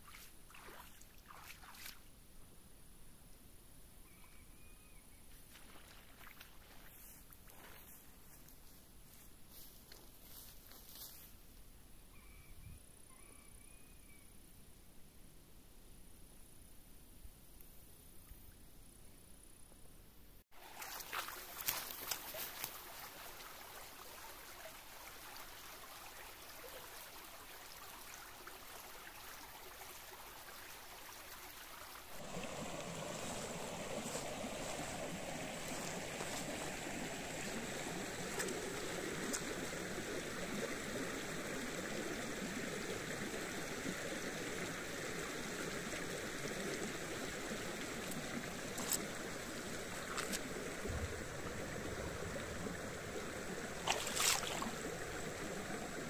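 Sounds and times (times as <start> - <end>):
stream water rushing: 20.6 - 56.0.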